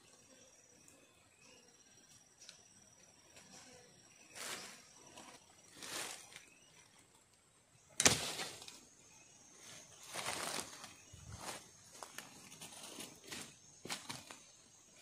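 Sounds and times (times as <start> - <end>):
dry leaves and sticks rustling: 4.3 - 7.2, 8.0 - 8.8, 9.6 - 14.5.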